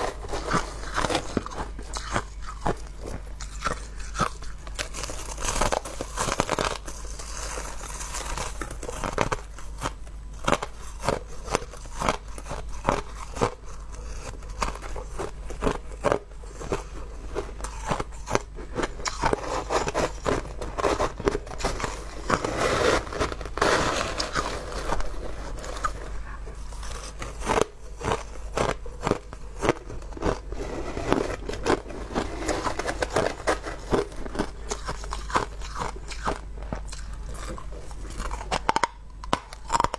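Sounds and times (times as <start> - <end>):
ice crunching as bitten: 0.0 - 26.0, 26.7 - 39.9.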